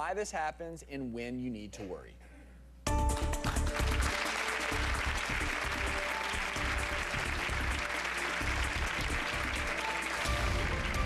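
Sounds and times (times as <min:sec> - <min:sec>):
music with low beat: 0:02.9 - 0:11.0
studio audience applauding: 0:03.0 - 0:11.0.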